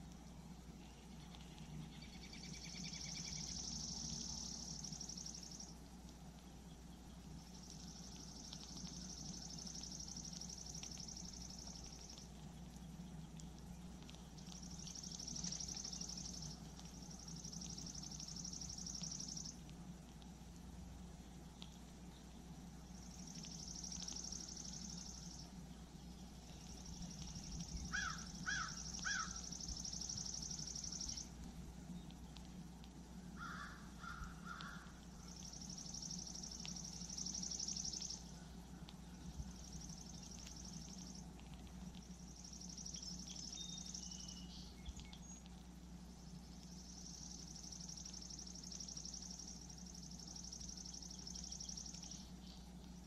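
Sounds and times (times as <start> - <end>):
steady low hum: 0.0 - 53.0
bird calls: 23.0 - 31.4, 33.4 - 41.3.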